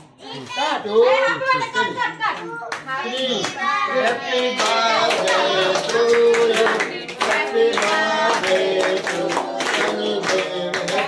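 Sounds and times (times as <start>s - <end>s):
people clapping in time: 2.4s - 11.0s
group of people singing: 3.3s - 11.0s.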